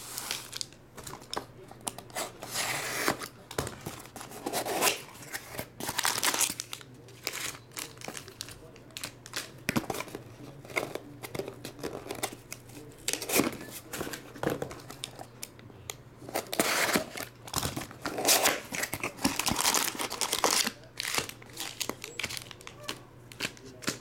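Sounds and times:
foil packs rustling: 0.0s - 10.1s, 16.3s - 24.0s.

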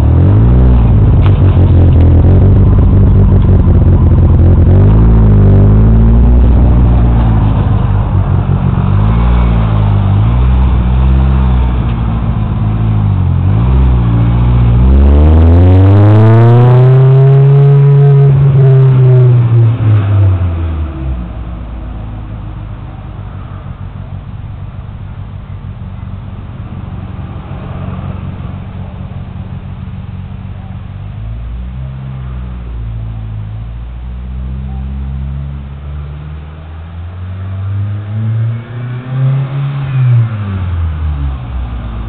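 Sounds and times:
turbocharged car engine revving: 0.0s - 21.7s, 34.1s - 42.0s.

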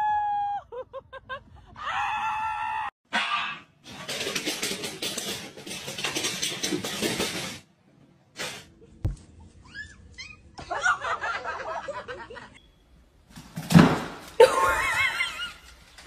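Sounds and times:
thump: 13.6s - 14.2s.

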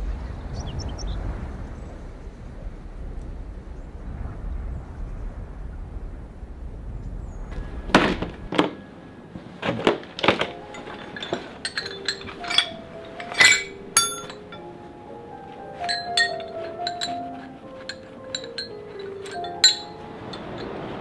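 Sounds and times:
soft music: 7.6s - 21.0s
metal tools clinking: 9.6s - 21.0s.

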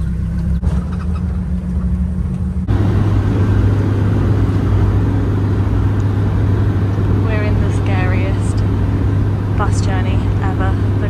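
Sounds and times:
bus engine hum: 0.0s - 11.0s
road noise: 0.0s - 11.0s.

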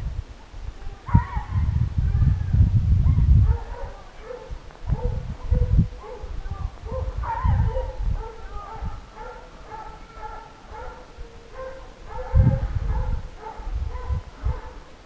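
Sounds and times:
hounds baying: 3.4s - 14.9s.

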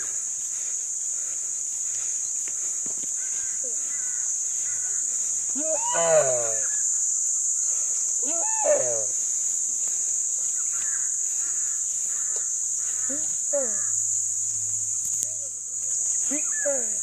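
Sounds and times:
deer screaming in distress: 5.6s - 6.8s, 8.2s - 9.2s.

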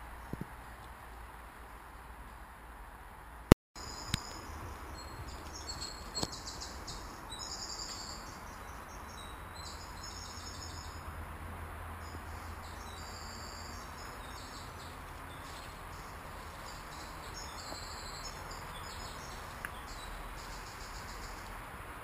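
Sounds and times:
high chirping: 3.8s - 11.0s, 12.0s - 21.5s.

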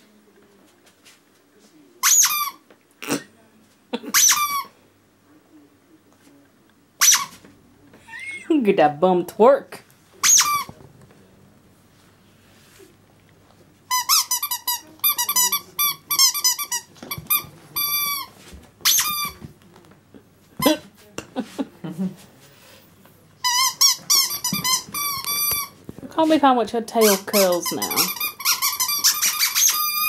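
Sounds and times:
squeaky toy squeaking: 2.0s - 2.6s, 4.1s - 4.7s, 7.0s - 7.4s, 10.2s - 10.7s, 13.9s - 19.4s, 23.4s - 25.7s, 27.0s - 30.0s.

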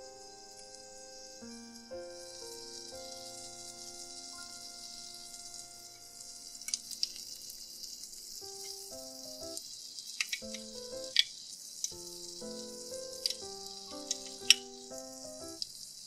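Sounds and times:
light background music: 0.0s - 9.6s, 10.4s - 11.2s, 12.0s - 15.6s
hot oil sizzling: 0.0s - 16.0s
sharp crackling pops: 6.5s - 15.8s.

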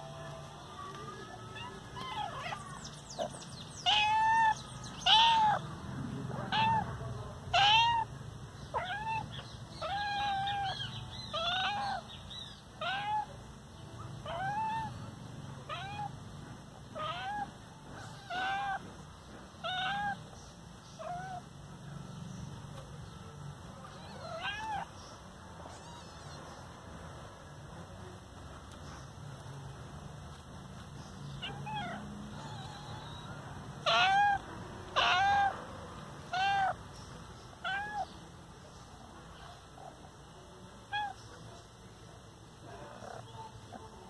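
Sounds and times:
cat meowing: 3.8s - 5.6s, 7.5s - 8.1s, 8.7s - 12.0s, 15.7s - 16.1s, 17.0s - 18.9s, 23.9s - 24.9s, 25.6s - 26.7s, 31.4s - 34.4s, 35.0s - 35.6s, 36.3s - 36.8s, 37.6s - 38.1s.

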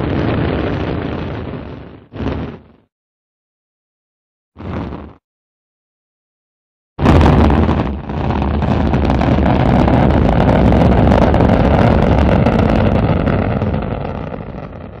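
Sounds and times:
rocket engine rumble: 0.0s - 2.8s, 7.0s - 15.0s.

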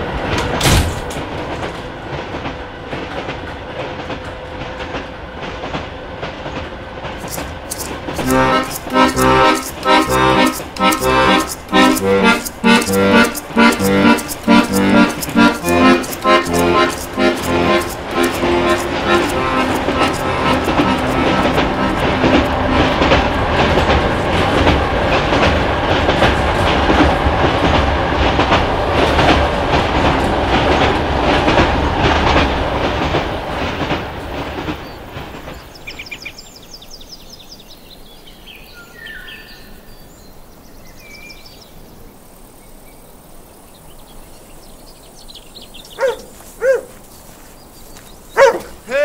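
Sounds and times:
train wheels clattering on rails: 0.0s - 37.9s
bird chirps: 34.8s - 48.9s
dog barks: 46.0s - 47.0s, 48.4s - 48.8s.

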